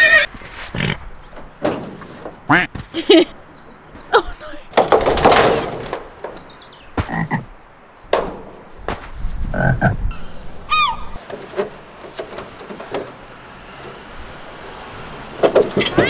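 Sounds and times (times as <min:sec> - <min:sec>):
frog-like croaks: 0:09.5 - 0:10.0.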